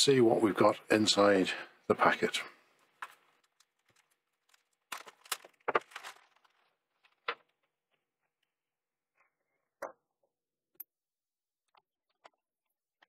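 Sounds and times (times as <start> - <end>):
scissors cutting plastic bag: 3.0 - 6.5.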